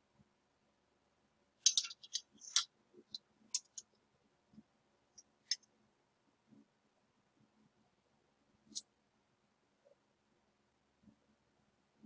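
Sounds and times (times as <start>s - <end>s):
metal clamp clicking and clinking: 1.7s - 2.7s, 3.6s - 3.9s.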